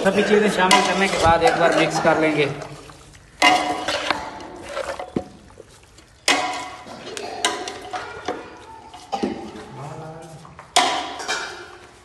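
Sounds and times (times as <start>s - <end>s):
spoon clanking against metal pot: 0.2s - 2.1s, 6.2s - 9.7s, 10.7s - 11.9s.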